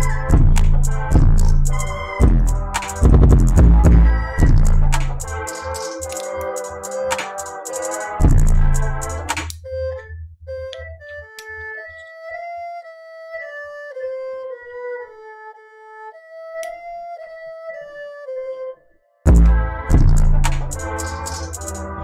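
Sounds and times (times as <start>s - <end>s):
low pulse: 0.0s - 5.4s, 8.2s - 9.3s, 19.3s - 22.0s.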